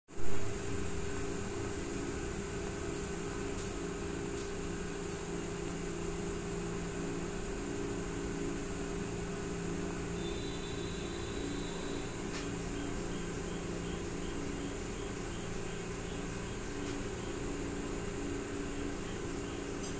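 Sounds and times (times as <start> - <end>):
low machine hum: 0.1 - 19.9.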